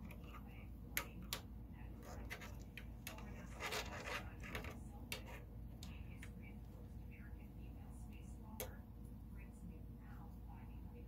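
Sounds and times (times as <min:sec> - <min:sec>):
light clicks and taps: 0:00.0 - 0:01.5.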